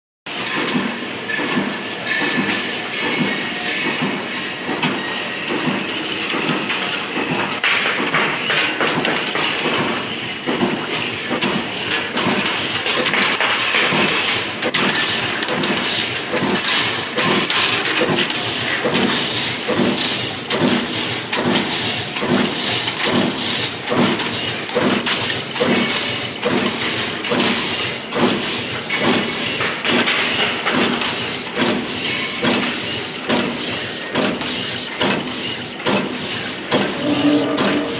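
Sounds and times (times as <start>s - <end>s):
machine hissing: 36.2s - 37.9s.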